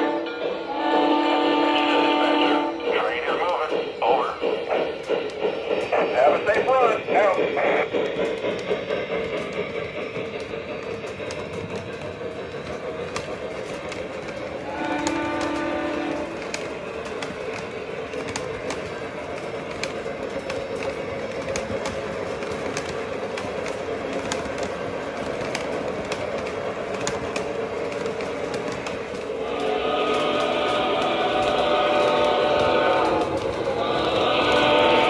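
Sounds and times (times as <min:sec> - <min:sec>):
multi-tone train whistle: 0:00.0 - 0:03.6, 0:13.6 - 0:17.5, 0:29.3 - 0:35.0
model train running rumble: 0:00.0 - 0:35.0
model train wheels clicking: 0:03.1 - 0:35.0.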